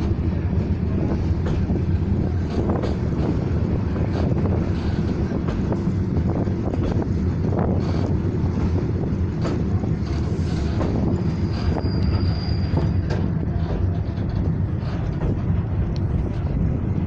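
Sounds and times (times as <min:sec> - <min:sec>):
train wheels rumbling on track: 0:00.0 - 0:17.0
high squeal: 0:10.4 - 0:13.3.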